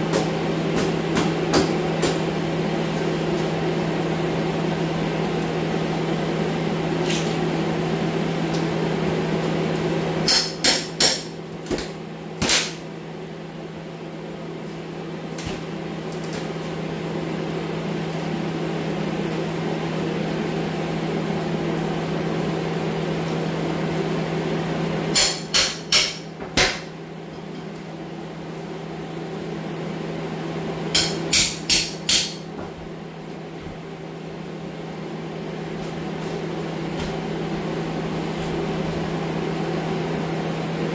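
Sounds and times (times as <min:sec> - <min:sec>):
hammer striking wood: 0:10.3 - 0:11.3, 0:25.1 - 0:26.9, 0:31.0 - 0:32.4.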